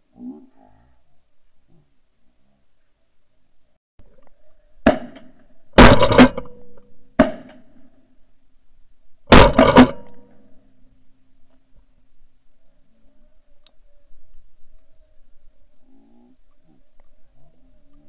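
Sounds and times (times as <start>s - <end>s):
shotgun shots: 5.8s - 6.6s, 9.3s - 10.2s.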